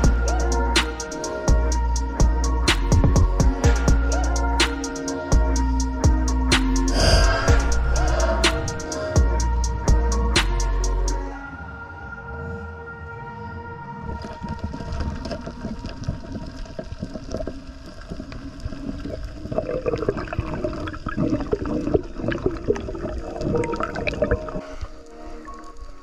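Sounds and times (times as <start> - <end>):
water gurgling and sloshing: 13.8 - 26.0.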